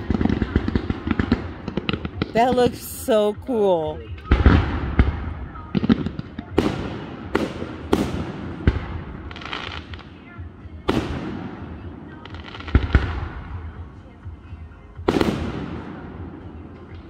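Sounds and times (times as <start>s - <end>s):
firework crackling: 0.0s - 10.3s, 10.9s - 14.0s
firework booms: 3.8s - 10.0s, 15.1s - 16.2s.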